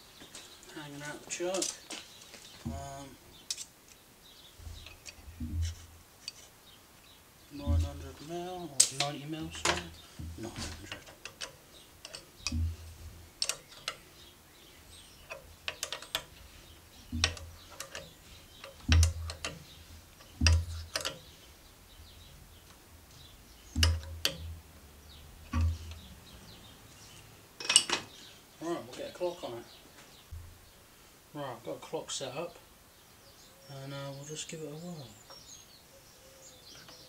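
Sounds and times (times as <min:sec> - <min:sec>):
dull thump: 0:04.6 - 0:06.0, 0:07.6 - 0:08.3, 0:09.6 - 0:11.0, 0:12.4 - 0:13.2, 0:30.3 - 0:30.6
spanner metallic clicks: 0:08.8 - 0:14.1, 0:15.2 - 0:16.4, 0:17.1 - 0:21.3, 0:23.7 - 0:24.5.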